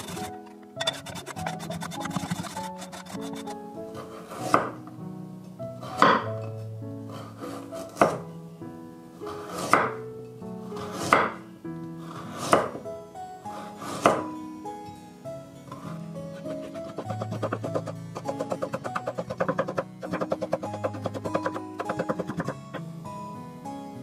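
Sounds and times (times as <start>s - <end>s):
background music: 0.0s - 24.0s
knife chopping on wooden board: 4.5s - 4.8s, 6.0s - 6.3s, 8.0s - 8.2s, 9.5s - 10.0s, 10.8s - 11.4s, 12.3s - 12.8s, 13.8s - 14.2s, 16.8s - 22.6s.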